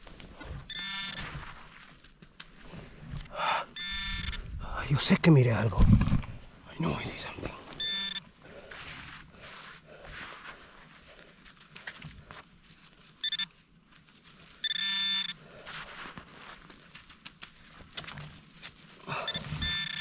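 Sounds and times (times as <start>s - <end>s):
metal detector beeping: 0.4s - 1.5s, 3.5s - 4.5s, 7.7s - 8.4s, 13.2s - 13.5s, 14.6s - 15.4s, 19.1s - 20.0s
faint clicks and scrapes: 8.6s - 20.0s.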